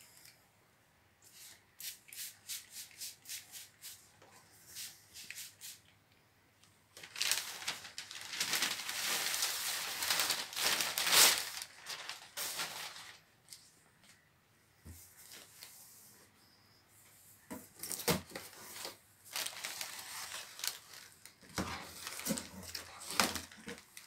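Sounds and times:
packing paper crinkling: 6.9s - 13.3s, 17.8s - 24.0s.

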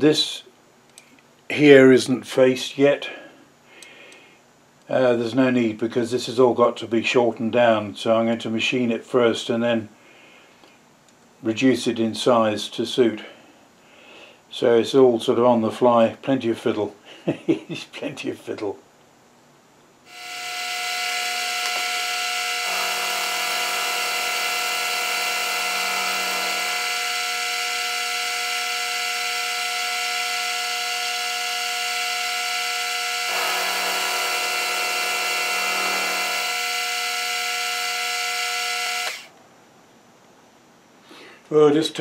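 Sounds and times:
milling machine whine: 20.1s - 39.3s.

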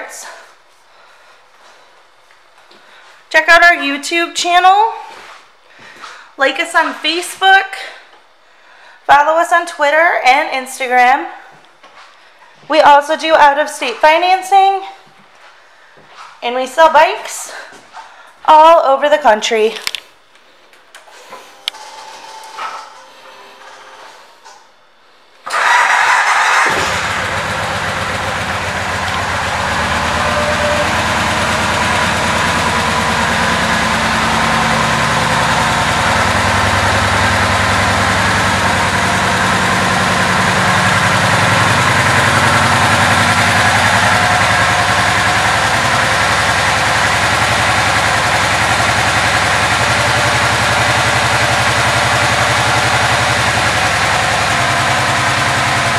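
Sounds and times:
motorcycle engine idling: 26.4s - 55.9s.

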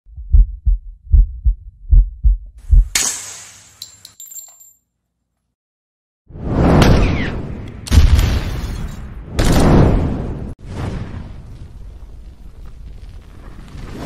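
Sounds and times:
deep double thumps: 0.1s - 3.0s
sharp crack with hiss: 3.0s - 3.8s
metallic clinks: 3.8s - 4.8s.

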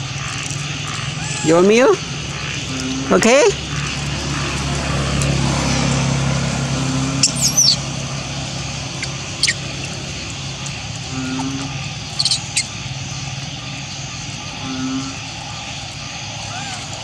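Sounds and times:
steady low hum: 0.0s - 17.0s
high-pitched gliding chirps: 6.6s - 15.7s.

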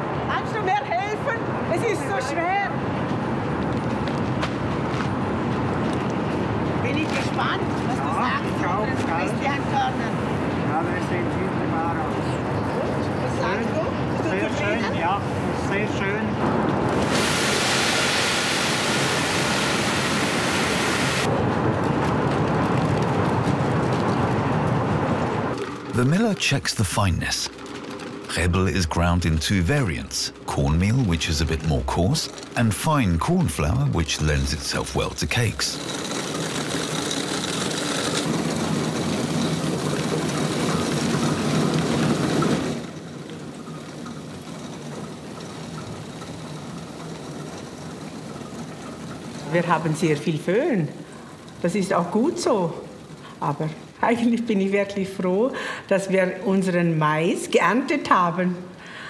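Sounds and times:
roller mill grinding corn: 25.6s - 53.6s.

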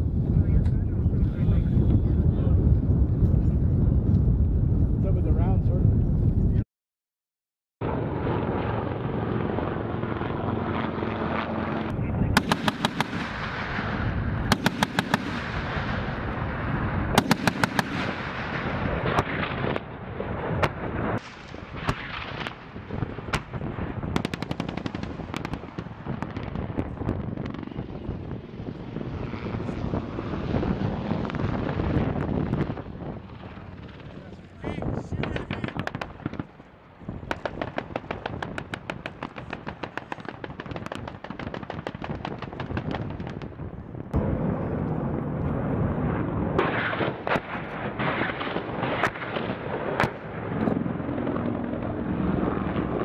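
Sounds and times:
scattered gunshots: 12.4s - 16.0s, 17.2s - 19.8s
automatic gunfire bursts: 17.2s - 18.2s.

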